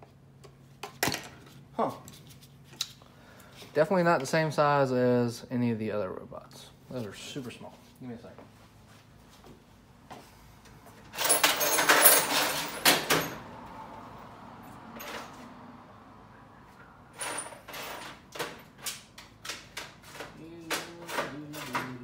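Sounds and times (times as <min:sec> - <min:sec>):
tools clattering and rattling: 0:10.9 - 0:13.5, 0:14.9 - 0:15.5, 0:17.1 - 0:22.0.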